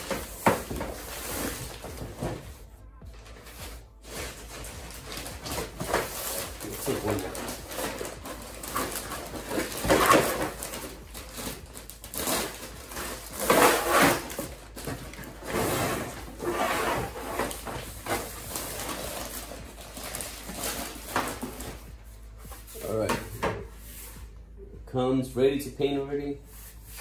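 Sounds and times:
plastic bag rustling: 0:03.2 - 0:23.0.

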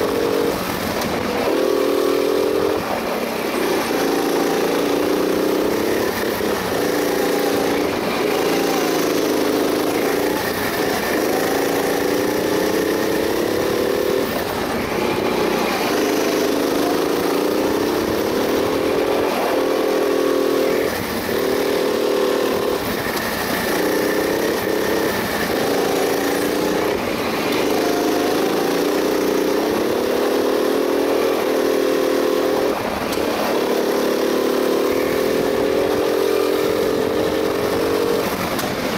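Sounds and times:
go-kart engine revving: 0:00.0 - 0:38.9.

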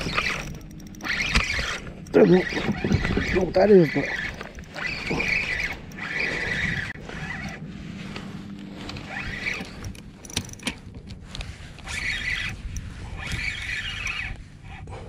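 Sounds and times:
sharp clicks: 0:00.0 - 0:07.6, 0:09.5 - 0:14.3
reel gears whirring: 0:00.0 - 0:14.6.

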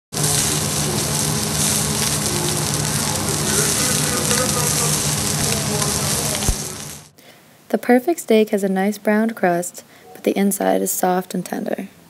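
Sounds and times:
steak sizzling in frying pan: 0:00.1 - 0:07.1
low hum: 0:00.2 - 0:07.2.

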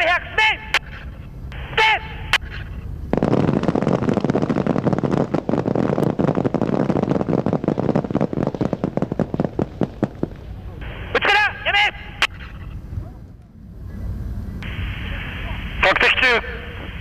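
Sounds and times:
rifles firing rapidly: 0:03.2 - 0:10.5.

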